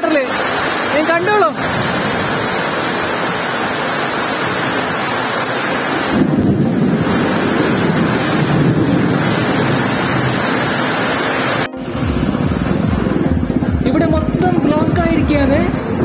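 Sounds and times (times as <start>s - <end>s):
heavy rain pouring: 0.0s - 16.0s
wind rumble on microphone: 6.1s - 10.8s, 11.8s - 16.0s.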